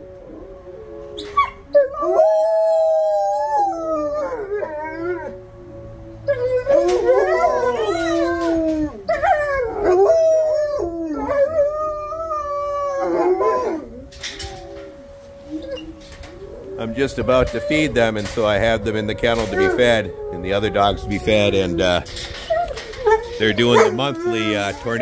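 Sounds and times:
warning siren steady tone: 0.0 - 25.0
wolfdogs howling: 0.0 - 25.0.

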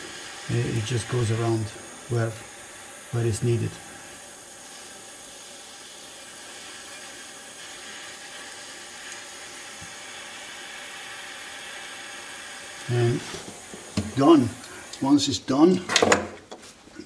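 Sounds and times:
gas torch hissing: 0.0 - 15.8.

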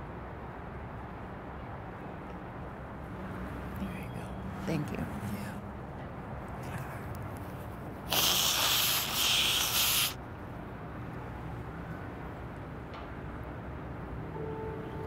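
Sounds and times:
loud hissing rush: 8.0 - 10.2.

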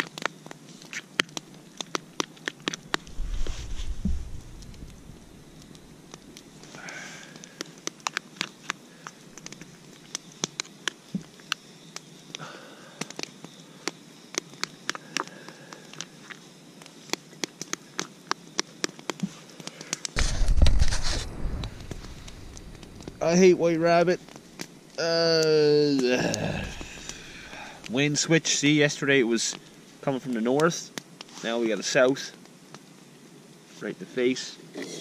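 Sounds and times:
loud rush of noise: 20.2 - 24.5.

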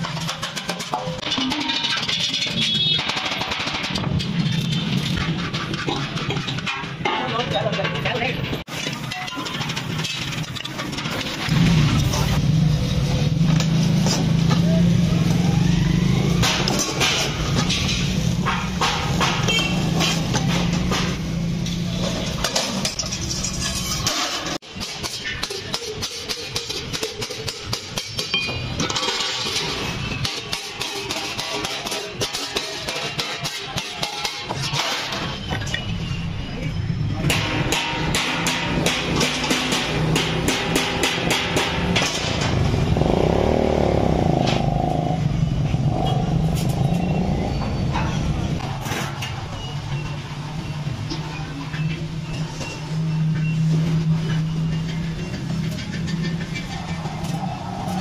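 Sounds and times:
metallic clanks of sheet steel: 0.0 - 12.4, 16.4 - 36.2, 37.2 - 42.9.

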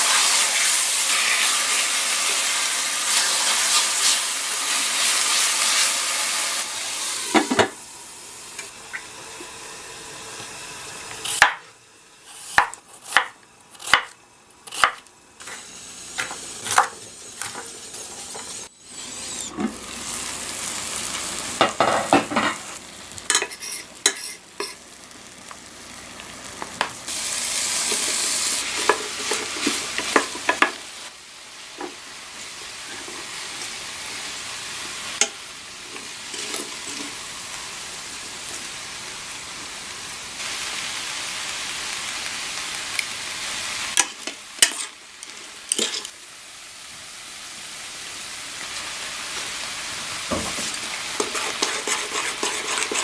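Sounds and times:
food sizzling in a pan: 0.0 - 53.0
spatula scraping a pan: 23.3 - 24.8, 44.0 - 46.2, 50.5 - 53.0.

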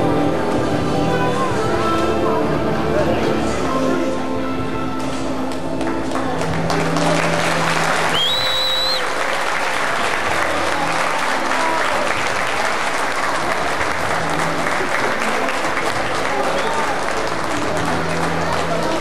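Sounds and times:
crowd applauding: 5.5 - 19.0
shrill whistle: 8.1 - 9.2.

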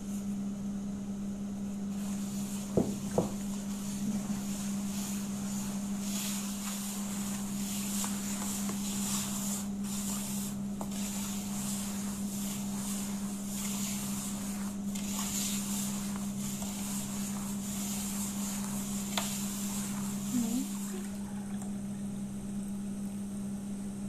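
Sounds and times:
gritty scraping on metal tray: 7.3 - 20.7.

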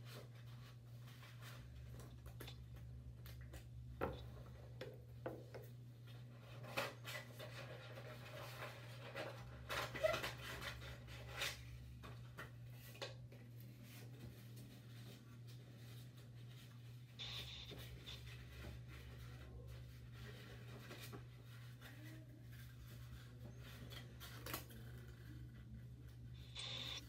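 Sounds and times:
paper rustling and crinkling: 17.7 - 26.3.

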